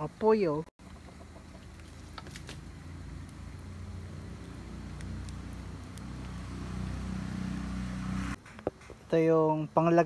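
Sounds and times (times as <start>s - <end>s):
wood fire crackling: 0.0s - 10.0s
motor engine hum: 0.8s - 8.4s.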